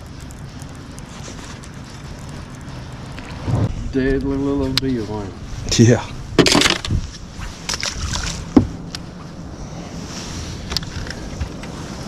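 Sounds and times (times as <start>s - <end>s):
wind: 0.0s - 12.0s.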